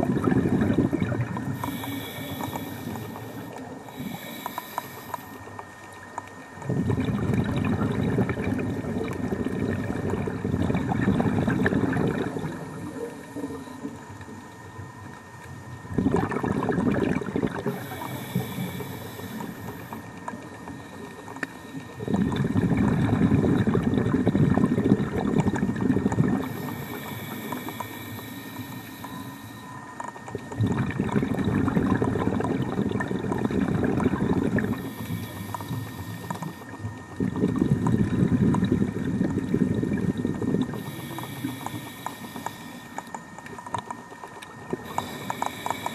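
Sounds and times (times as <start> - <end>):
gurgling exhaled bubbles: 0.0 - 5.2, 6.5 - 14.4, 15.7 - 29.4, 30.0 - 45.9
high hiss of inhalation: 1.6 - 5.4, 17.7 - 20.0, 26.4 - 29.7, 40.8 - 43.0, 44.9 - 45.9.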